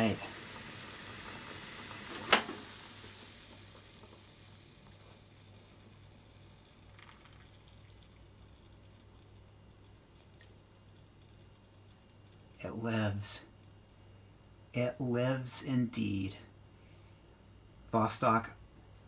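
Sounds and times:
water boiling in saucepan: 0.0 - 13.9.

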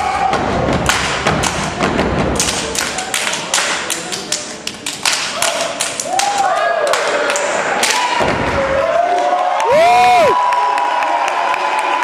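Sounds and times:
hand claps and foot stomps: 0.7 - 8.4.

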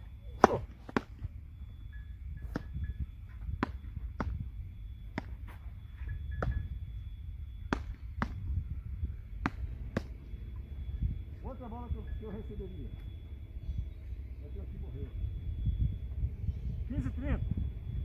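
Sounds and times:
ball struck by paddles: 0.4 - 1.2, 3.5 - 4.4, 5.1 - 5.6, 7.7 - 8.5, 9.4 - 10.2.

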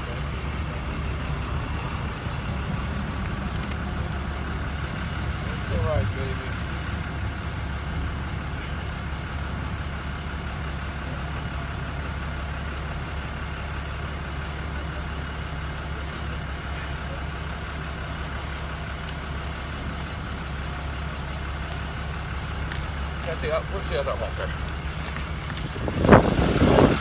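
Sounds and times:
truck engine idling: 0.0 - 27.0.

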